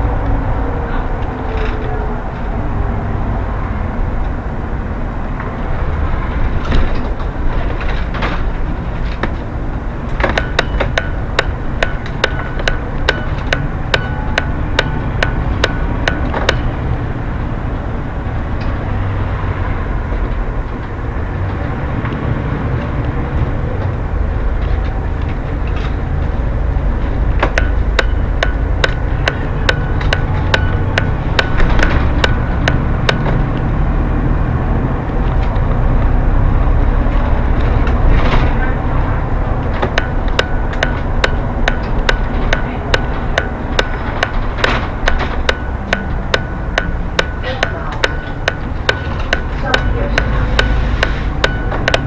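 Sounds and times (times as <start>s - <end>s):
bus engine and road rumble: 0.0s - 52.0s
sharp clicks or rattles: 6.6s - 17.5s, 24.6s - 33.7s, 39.5s - 52.0s.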